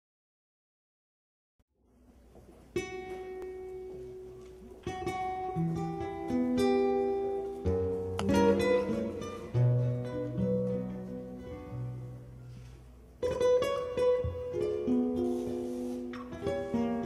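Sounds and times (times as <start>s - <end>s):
acoustic guitar playing: 2.0s - 17.0s.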